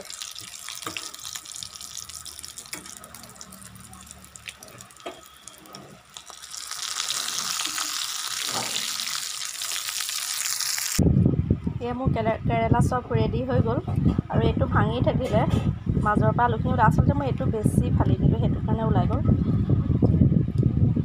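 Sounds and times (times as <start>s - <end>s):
oil sizzling in a pan: 0.0s - 11.0s.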